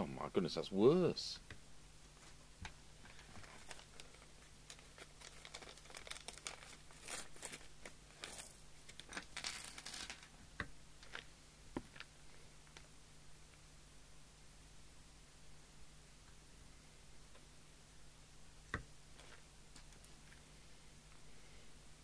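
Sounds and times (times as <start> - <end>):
faint steady hum: 0.0 - 22.0
crinkling and rustling: 2.2 - 10.4, 11.0 - 12.9, 19.1 - 20.5.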